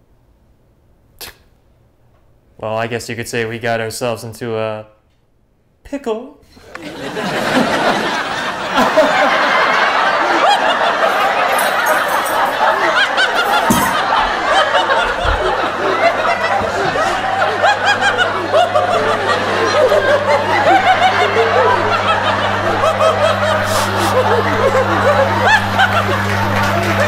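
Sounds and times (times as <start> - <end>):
laughter and snickering: 6.6 - 27.0
low droning hum: 13.8 - 27.0.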